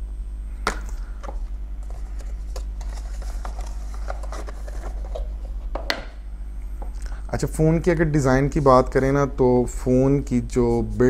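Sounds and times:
steady low hum: 0.0s - 11.0s
packaging rustling: 0.8s - 5.9s.

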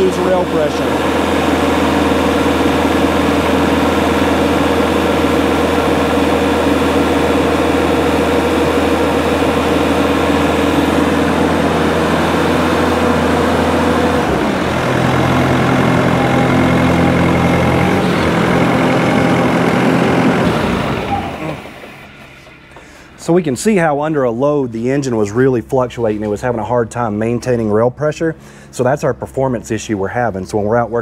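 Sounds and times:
diesel engine at full throttle: 0.0s - 31.0s.

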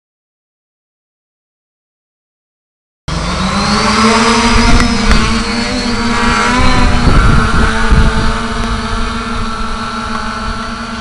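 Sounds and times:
drone motors and propellers: 3.1s - 11.0s.

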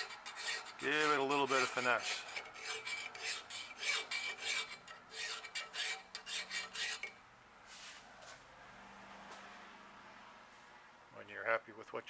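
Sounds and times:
hand file rasping on metal: 0.0s - 7.2s.

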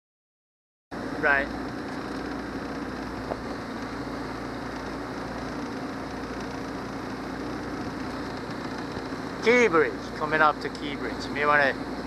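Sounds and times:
boat motor humming: 0.9s - 12.0s
water noise: 1.0s - 12.0s.

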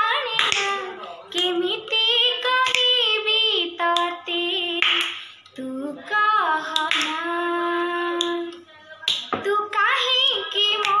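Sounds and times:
girl singing: 0.0s - 11.0s
hand claps: 0.4s - 0.8s, 2.6s - 2.9s, 4.8s - 5.4s, 6.8s - 7.2s, 9.1s - 9.4s.

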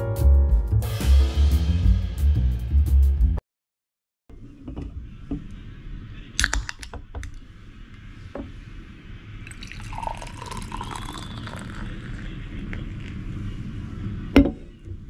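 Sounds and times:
can cracked open: 6.4s - 7.4s
beer pouring and fizzing: 9.4s - 13.3s.

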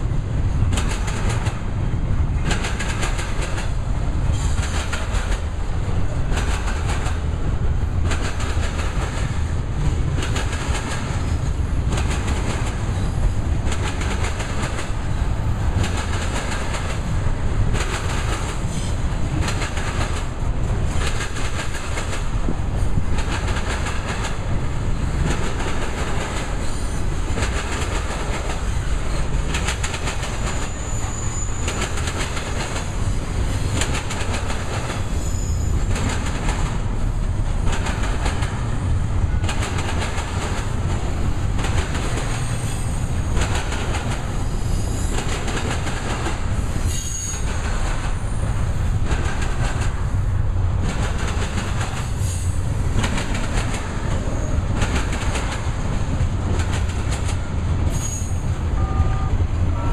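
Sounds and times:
train wheels clattering on track: 0.0s - 59.9s
high wheel squeals: 30.5s - 31.9s, 35.1s - 35.9s, 46.8s - 47.6s, 57.9s - 59.2s.

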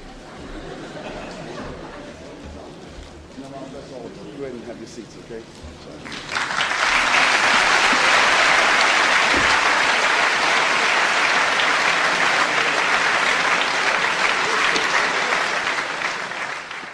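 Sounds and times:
audience applauding: 6.0s - 16.9s.

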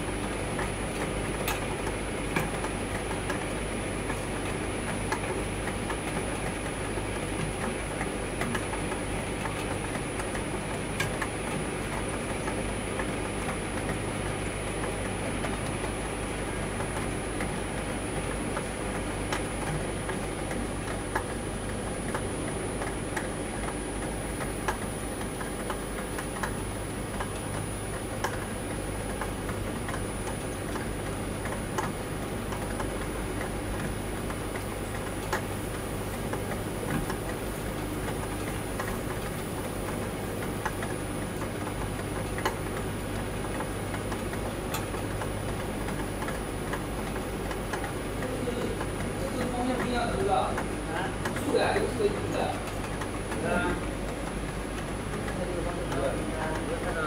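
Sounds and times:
conveyor mechanical hum: 0.0s - 57.0s.

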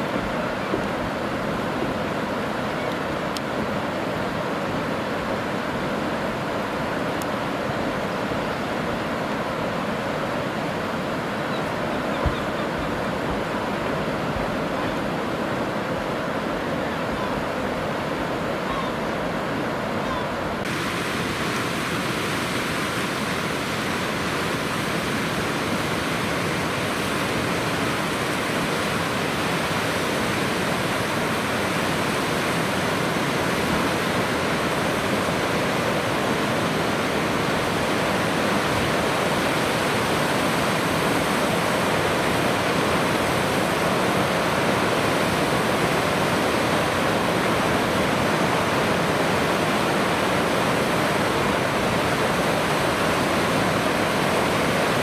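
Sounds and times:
fast-flowing water rushing: 0.0s - 55.0s.

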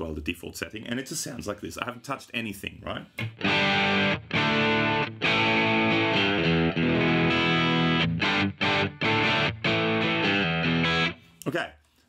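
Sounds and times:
electric guitar chords strummed: 3.2s - 11.2s.

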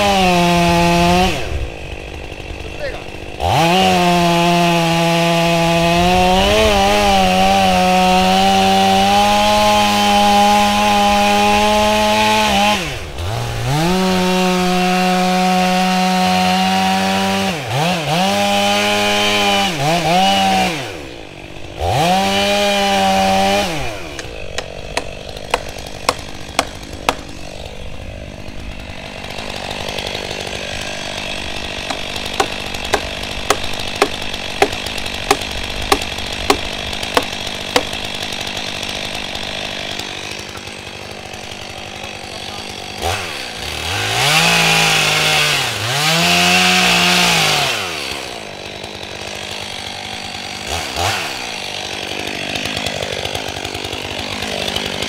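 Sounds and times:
chainsaw cutting wood: 0.0s - 55.0s.

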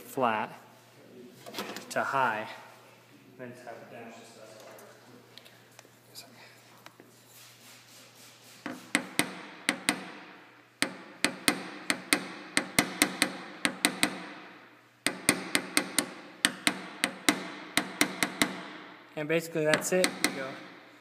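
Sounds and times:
tool tapping on metal hood: 8.7s - 18.9s, 19.7s - 20.8s.

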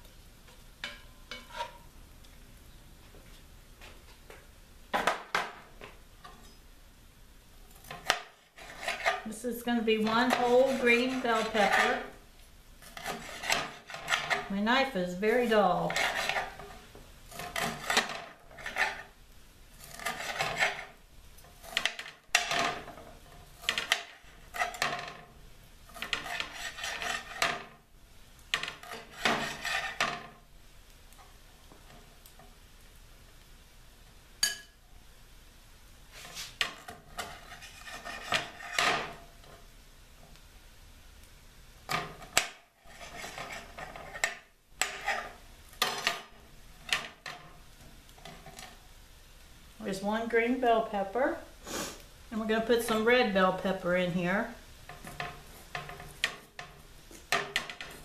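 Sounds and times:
knife slicing on glass board: 19.8s - 21.0s.

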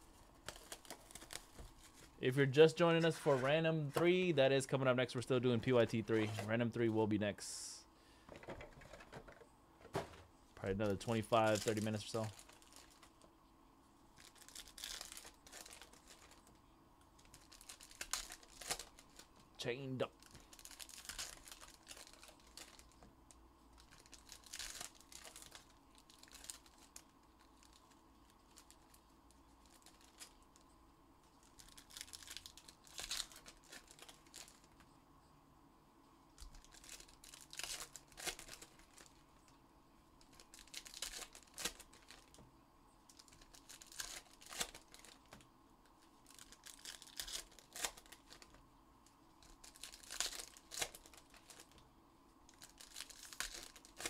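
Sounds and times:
card pack wrappers crinkling and tearing: 0.4s - 2.2s, 10.7s - 13.3s, 14.2s - 16.6s, 17.2s - 23.0s, 23.7s - 30.6s, 31.4s - 34.8s, 36.4s - 39.2s, 40.2s - 42.4s, 43.1s - 48.6s, 49.4s - 51.8s, 52.4s - 54.0s.

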